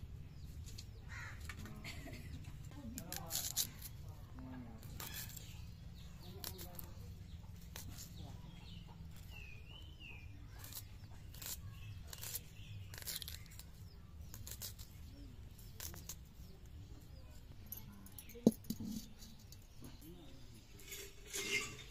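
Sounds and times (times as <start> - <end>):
bird chirping: 3.0 - 21.9
knife cutting onions: 10.5 - 14.9.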